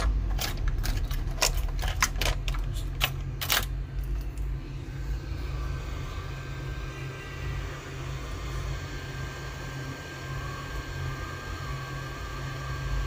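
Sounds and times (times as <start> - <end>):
hot air station blowing: 4.2 - 13.0.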